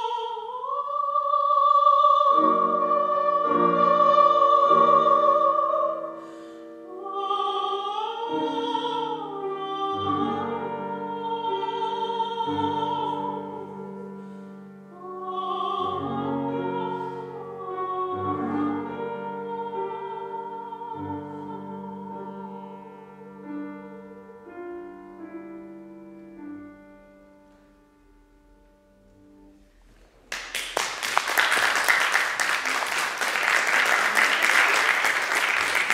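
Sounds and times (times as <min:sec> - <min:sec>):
soprano singing with vibrato: 0:00.0 - 0:25.3
grand piano playing: 0:02.2 - 0:29.9
audience applause: 0:30.3 - 0:35.9.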